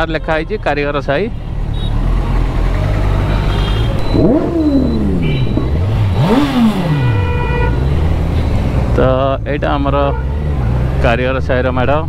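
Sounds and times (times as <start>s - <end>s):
motorcycle engine revving: 1.6s - 12.0s.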